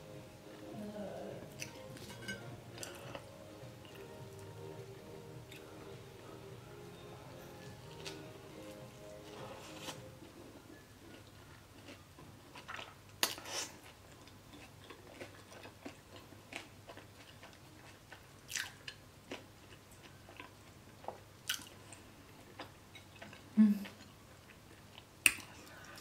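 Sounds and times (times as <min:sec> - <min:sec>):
chewing with wet mouth smacks: 0:11.1 - 0:26.0.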